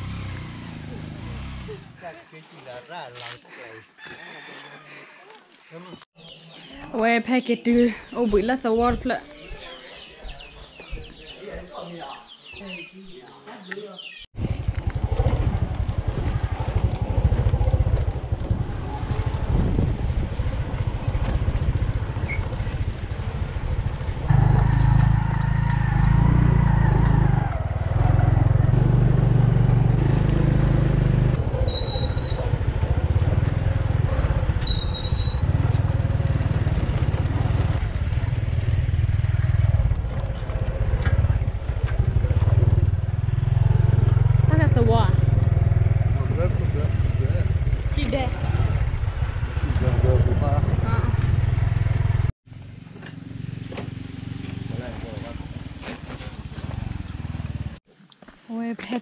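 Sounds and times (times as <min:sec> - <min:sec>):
motorbike engine running: 0:14.4 - 0:25.1, 0:27.6 - 0:57.8.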